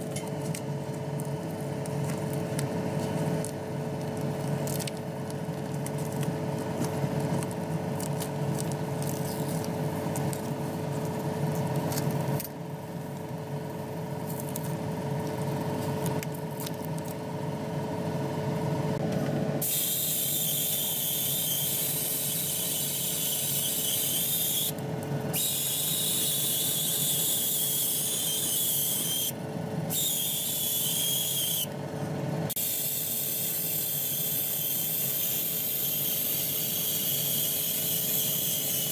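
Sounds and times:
extractor fan hum with high whine: 0.0 - 38.9
paint sprayer hissing: 19.6 - 24.7, 32.5 - 38.9.

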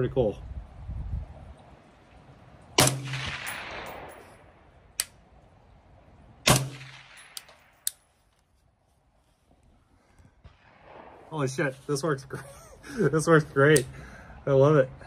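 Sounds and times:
suppressed rifle shots with echo: 2.8 - 4.7, 6.4 - 7.9, 10.4 - 11.8.

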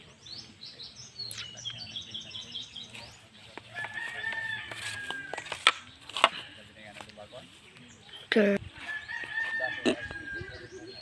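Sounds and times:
rooster crowing: 3.7 - 5.4, 8.8 - 10.7.

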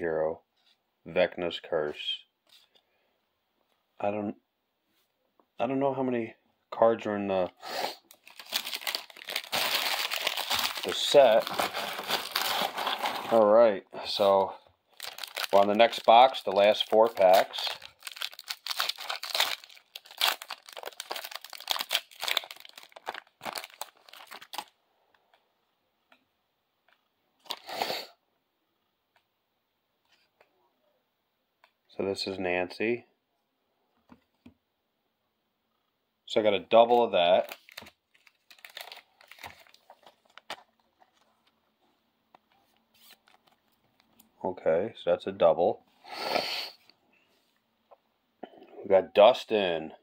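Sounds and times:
soft rustle of cards: 2.4 - 3.0, 37.0 - 44.4
foil wrapper tearing and crinkling: 8.1 - 13.4, 14.9 - 24.7, 37.4 - 40.6.

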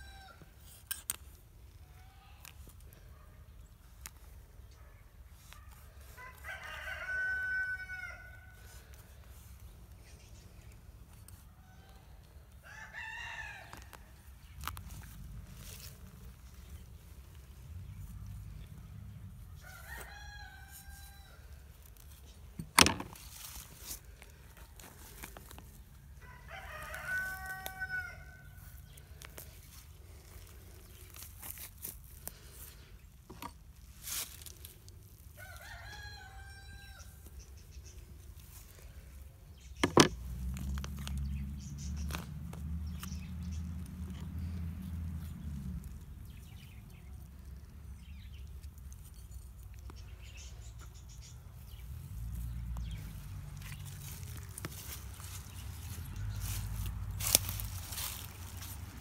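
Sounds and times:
rooster crowing: 0.0 - 0.5, 6.2 - 8.6, 12.6 - 14.0, 19.6 - 21.5, 26.2 - 28.7, 35.4 - 37.2.

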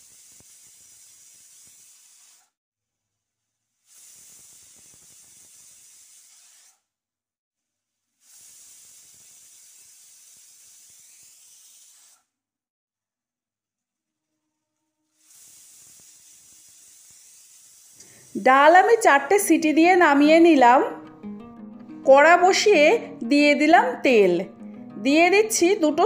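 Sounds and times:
pressure cooker whistle venting steam: 0.0 - 2.5, 3.8 - 6.8, 8.2 - 12.3, 15.1 - 19.1.

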